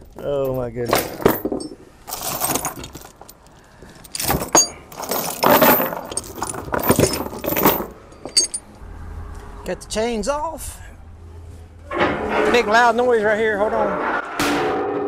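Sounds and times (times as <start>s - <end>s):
chains clanking on wooden deck: 0.0s - 8.7s.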